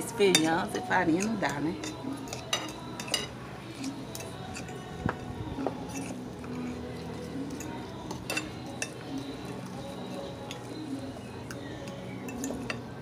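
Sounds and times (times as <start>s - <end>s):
cutlery scraping and clinking on plate: 0.2s - 13.0s.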